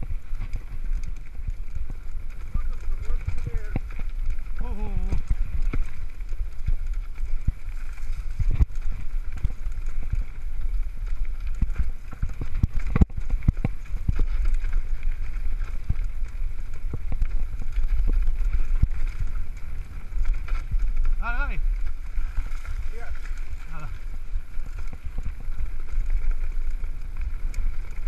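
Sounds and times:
mountain bike rattling and knocking: 0:00.0 - 0:28.0
wind buffeting microphone: 0:00.0 - 0:28.0.

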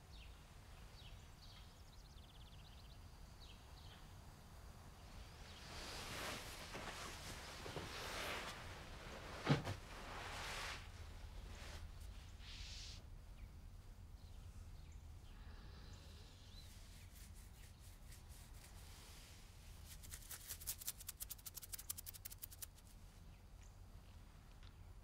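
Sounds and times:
faint clicks: 0:20.1 - 0:23.0.

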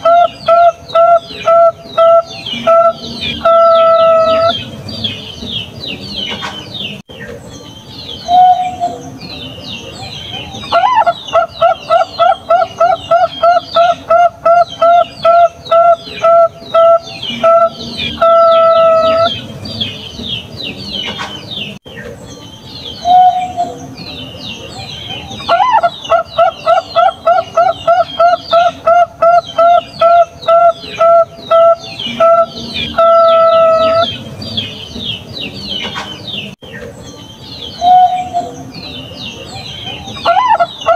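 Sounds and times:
dove cooing: 0:00.0 - 0:05.2, 0:10.4 - 0:19.5, 0:25.1 - 0:34.8, 0:37.8 - 0:38.7, 0:39.8 - 0:40.9
small birds chirping: 0:00.0 - 0:40.9.

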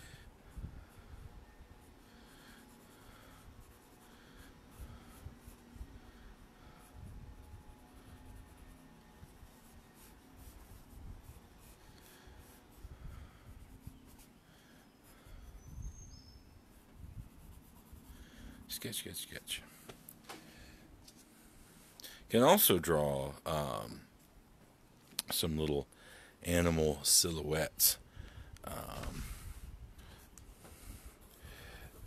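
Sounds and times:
pencil scratching on paper: 0:01.8 - 0:15.7, 0:16.7 - 0:18.5.

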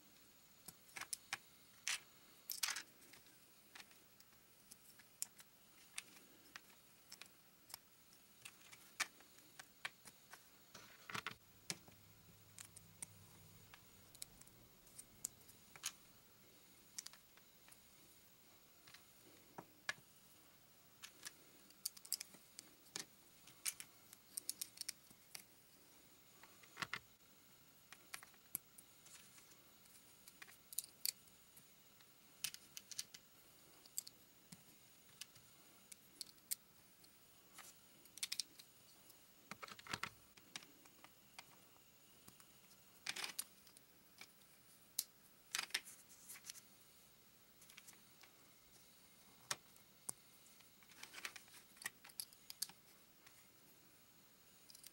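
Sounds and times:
plastic bricks clicking: 0:21.0 - 0:25.5, 0:38.1 - 0:38.7, 0:43.0 - 0:44.3, 0:50.9 - 0:52.8.

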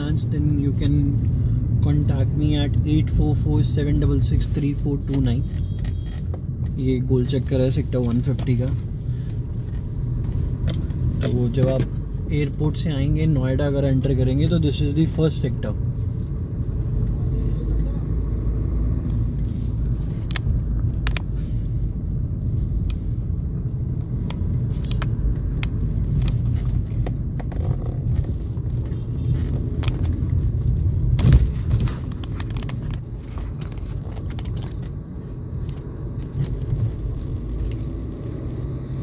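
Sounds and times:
car road and engine rumble: 0:00.0 - 0:39.0
light clicks and rattles: 0:24.0 - 0:37.8.

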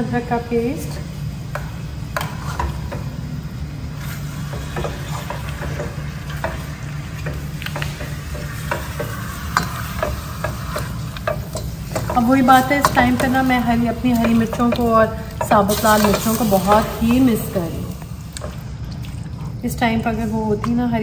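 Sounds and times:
chicken sizzling in a pan: 0:01.0 - 0:18.4
spatula scraping a pan: 0:02.2 - 0:02.9, 0:04.0 - 0:16.8.

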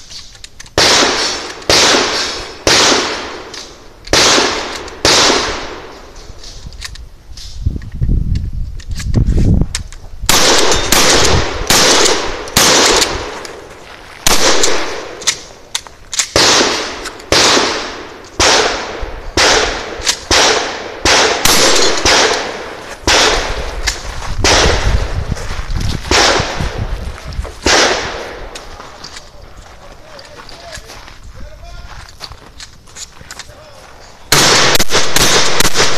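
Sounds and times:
shotgun shots with echo: 0:00.8 - 0:05.9, 0:10.3 - 0:13.4, 0:14.2 - 0:15.2, 0:16.3 - 0:23.7, 0:24.4 - 0:25.1, 0:26.1 - 0:26.8, 0:27.6 - 0:28.5, 0:34.3 - 0:35.9.

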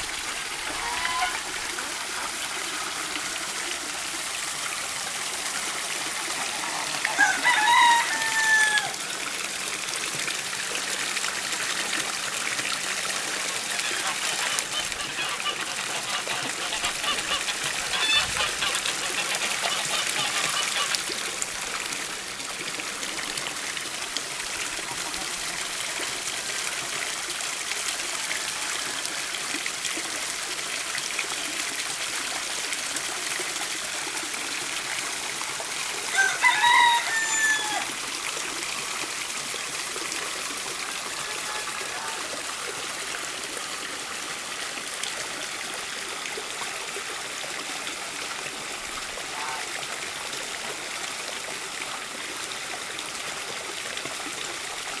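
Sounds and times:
water pouring and splashing: 0:00.0 - 0:55.0
bird call: 0:13.7 - 0:21.0.

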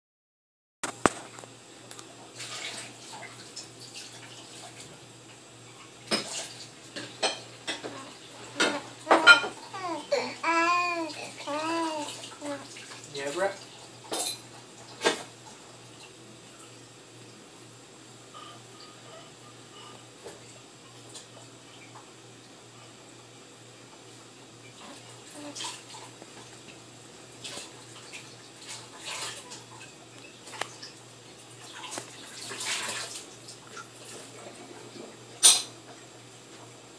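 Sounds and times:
water splashing in sink: 0:02.3 - 0:04.9, 0:06.0 - 0:09.8, 0:10.4 - 0:15.6, 0:27.4 - 0:35.7
dishes and cutlery clinking: 0:06.1 - 0:09.7, 0:14.1 - 0:15.3, 0:35.4 - 0:35.8.

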